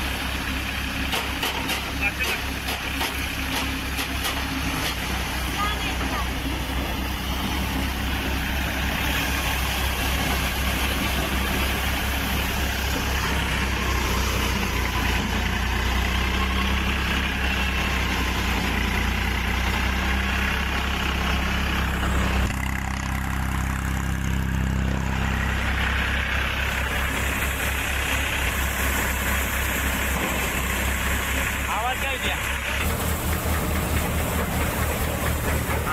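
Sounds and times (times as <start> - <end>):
tractor diesel engine running: 0.0 - 35.9
threshing machine rushing hiss: 32.8 - 35.9.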